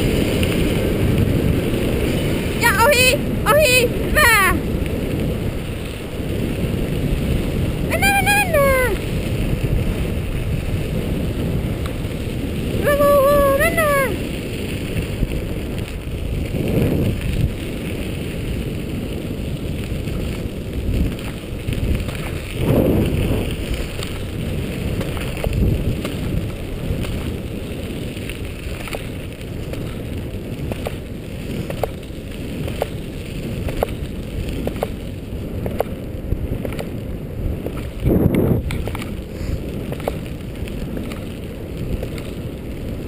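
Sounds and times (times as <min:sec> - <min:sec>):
tyres rumbling on rough road: 0:00.0 - 0:43.0
wind rushing over microphone: 0:00.0 - 0:43.0
small ticks: 0:19.2 - 0:37.0, 0:37.6 - 0:43.0.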